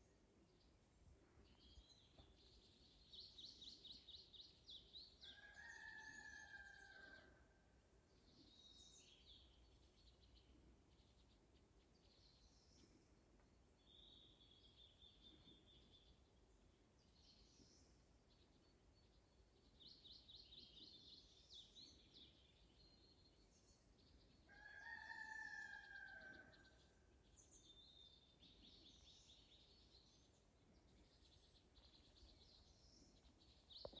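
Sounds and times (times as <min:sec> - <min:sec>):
faint songbirds chirping: 0:00.0 - 0:34.0
rooster crowing: 0:05.3 - 0:07.2, 0:24.5 - 0:26.7.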